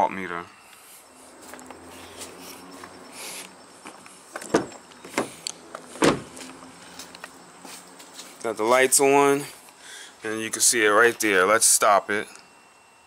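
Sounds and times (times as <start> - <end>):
footsteps on a walkway: 1.3 - 8.8
car door latch clunks: 4.4 - 5.3, 6.0 - 6.3.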